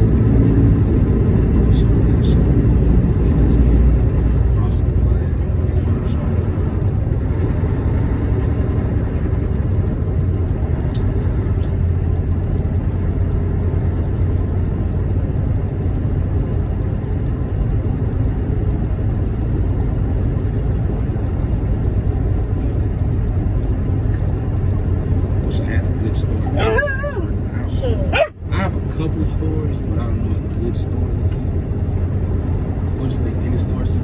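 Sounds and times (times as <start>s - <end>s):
road noise: 0.0s - 34.0s
truck engine rumble: 0.0s - 34.0s.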